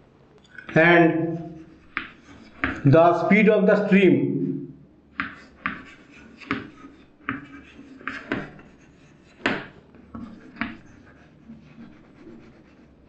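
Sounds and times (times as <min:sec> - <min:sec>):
chalk tapping and scraping on blackboard: 0:00.6 - 0:02.8, 0:05.1 - 0:13.0.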